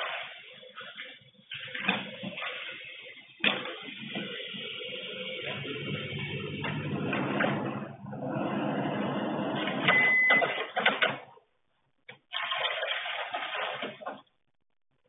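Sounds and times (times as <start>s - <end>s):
short high beep: 9.9s - 10.6s.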